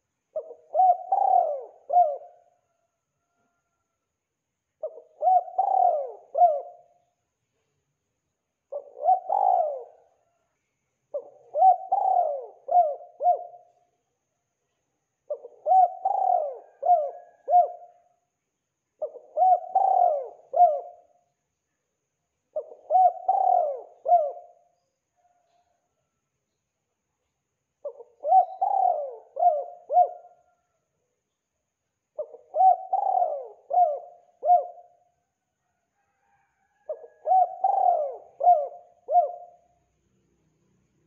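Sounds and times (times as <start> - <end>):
dove cooing: 0.0 - 2.8, 4.8 - 7.0, 8.7 - 10.3, 11.1 - 13.8, 15.3 - 18.1, 19.0 - 21.2, 22.5 - 25.8, 27.8 - 30.8, 32.2 - 35.1, 36.1 - 39.7.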